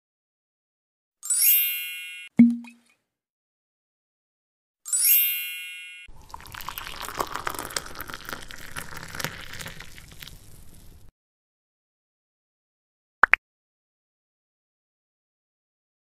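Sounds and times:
bell-like ding: 1.3s - 2.8s, 4.9s - 6.1s
water pouring into a saucepan: 6.1s - 11.1s.

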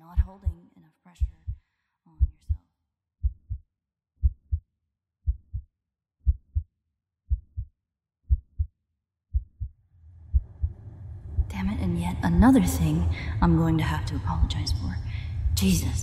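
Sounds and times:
heartbeat double thump: 0.2s - 0.6s, 1.2s - 1.6s, 3.2s - 3.6s, 4.2s - 4.6s, 5.3s - 6.7s, 8.3s - 8.7s, 9.3s - 9.7s, 10.3s - 11.5s
low steady rumble: 10.0s - 16.0s.

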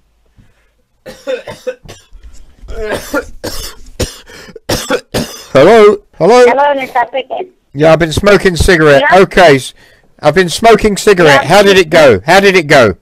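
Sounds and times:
man coughing: 1.1s - 2.1s, 2.7s - 5.6s.

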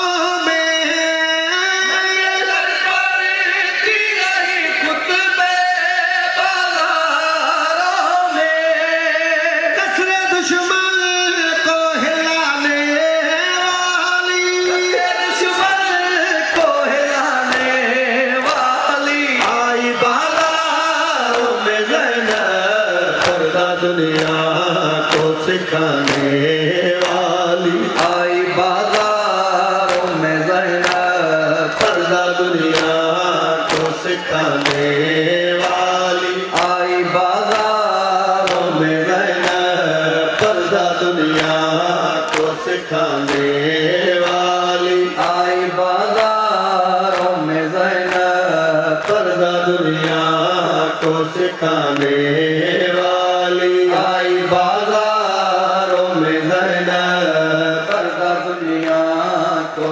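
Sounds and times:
men chanting in unison: 0.0s - 59.9s
rhythmic chest-beating strikes: 14.4s - 59.9s.

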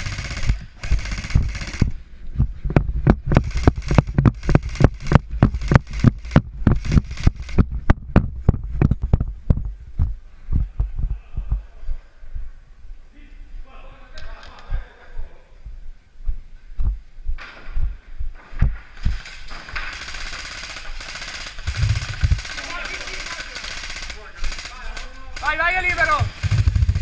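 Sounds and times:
dense rattling noise: 0.0s - 11.5s, 18.6s - 27.0s
running footsteps on hard ground: 0.5s - 11.6s.

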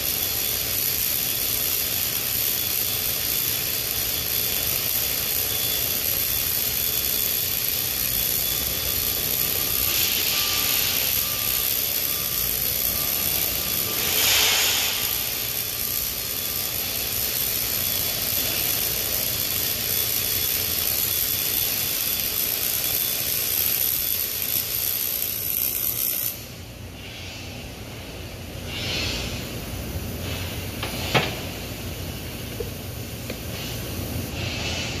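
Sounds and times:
welding arc hissing: 0.0s - 35.0s
workshop noise: 5.4s - 22.3s, 26.7s - 35.0s.

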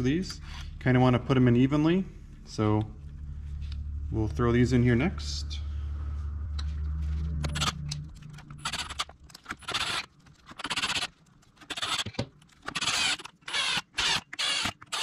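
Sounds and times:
low steady hum: 0.0s - 13.5s
cordless drill driving screws: 8.6s - 15.0s.

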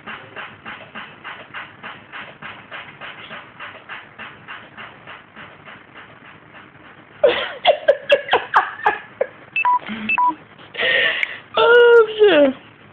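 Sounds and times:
loud laughter: 7.2s - 9.1s
short electronic beeps: 9.6s - 10.4s.

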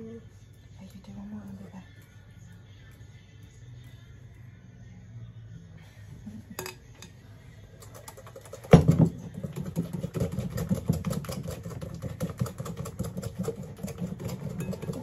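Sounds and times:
utensil clattering in bowl: 6.5s - 7.2s, 7.8s - 15.0s.

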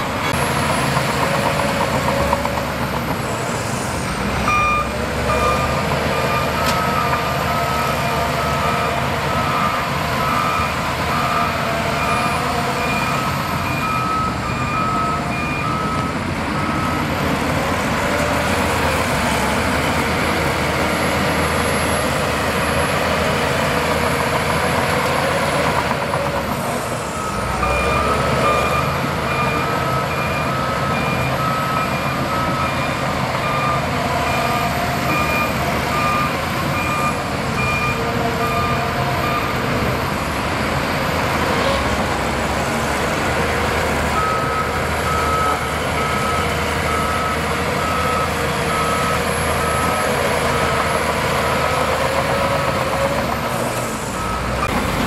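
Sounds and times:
bulldozer diesel engine running: 0.0s - 55.0s
bulldozer pushing soil and rock: 0.0s - 55.0s
reversing alarm beeping: 4.5s - 19.0s, 26.5s - 40.4s, 44.1s - 55.0s.

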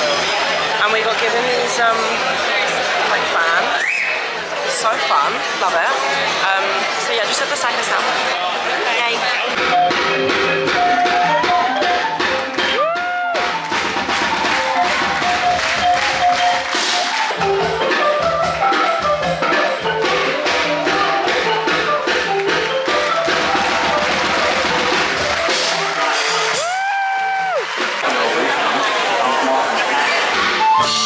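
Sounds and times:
drums and percussion: 0.0s - 31.0s
tuned percussion melody: 9.5s - 26.8s.

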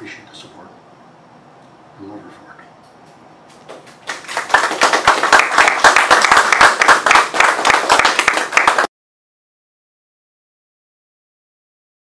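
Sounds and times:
audience applauding: 3.7s - 8.9s.

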